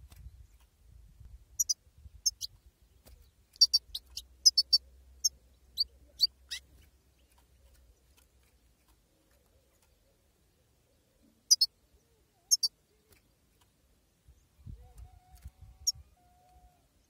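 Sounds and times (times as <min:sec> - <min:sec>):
goldfinch chirping calls: 0:01.6 - 0:02.6, 0:03.2 - 0:07.4, 0:11.4 - 0:11.8, 0:12.5 - 0:12.8.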